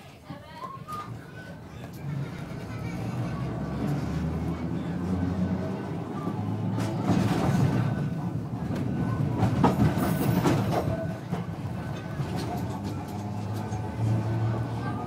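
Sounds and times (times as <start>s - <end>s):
tram rumble and motor hum: 0.9s - 15.0s
wheels knocking on rails: 6.6s - 14.5s.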